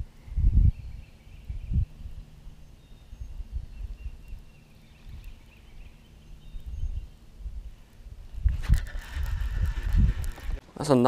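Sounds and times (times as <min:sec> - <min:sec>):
wind buffeting microphone: 0:00.0 - 0:10.6
faint bird chirps: 0:00.2 - 0:07.8.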